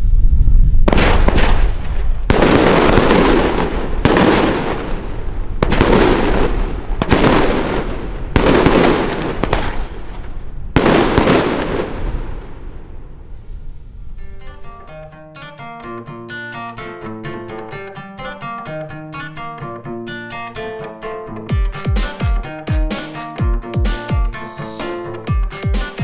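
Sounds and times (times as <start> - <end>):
fireworks banging with echoing rumble: 0.8 - 13.2.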